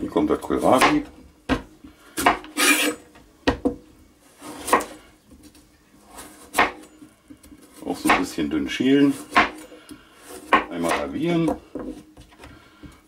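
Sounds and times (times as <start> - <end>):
knife cutting vegetable skin: 2.2 - 3.0.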